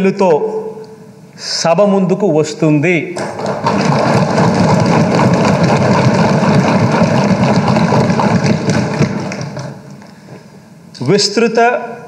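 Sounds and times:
many people thumping desks: 0:03.2 - 0:10.5.

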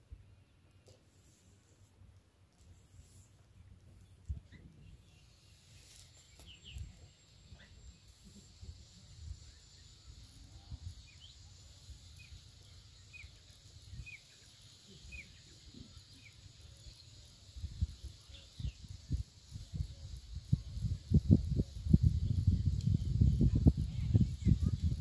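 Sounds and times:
bird chirping: 0:03.6 - 0:20.9.

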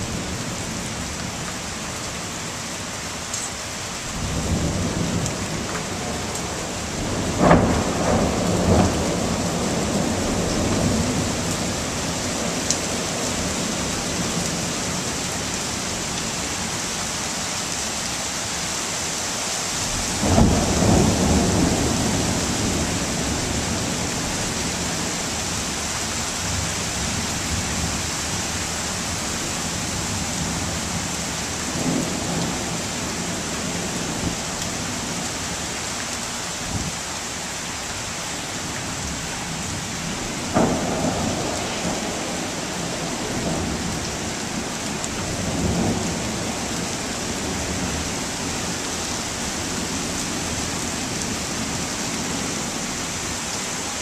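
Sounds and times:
steady rain: 0:00.0 - 0:54.0
thunder rumbling and cracking: 0:04.1 - 0:16.2, 0:19.9 - 0:25.7, 0:38.9 - 0:48.7.

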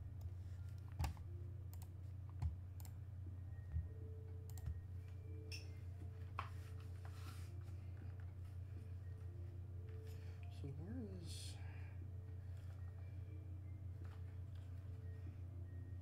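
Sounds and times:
steady low hum: 0:00.0 - 0:16.0
computer mouse clicks: 0:00.2 - 0:03.0, 0:03.7 - 0:04.8.

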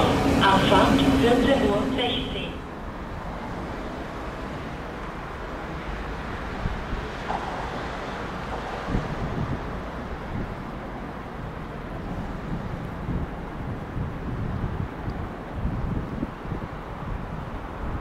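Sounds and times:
train wheels rumbling on track: 0:00.0 - 0:17.8
wind on microphone: 0:08.6 - 0:18.0.

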